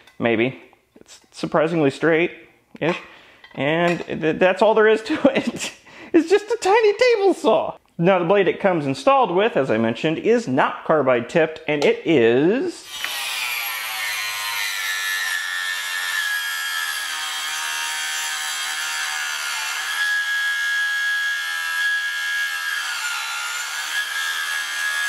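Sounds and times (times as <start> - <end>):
saw blade cutting wood: 12.8 - 25.0
table saw motor whining: 12.9 - 25.0.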